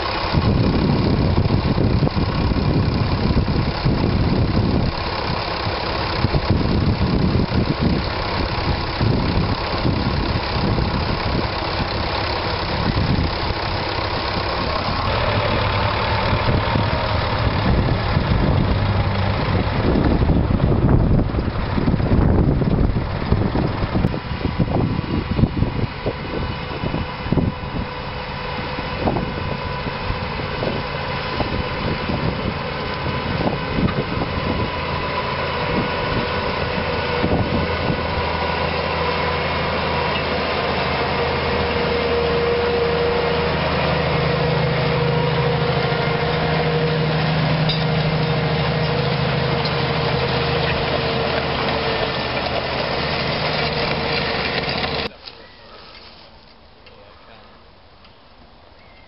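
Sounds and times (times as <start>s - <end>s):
diesel tractor engine under load: 0.0s - 57.0s
wind gusts on microphone: 14.6s - 38.5s.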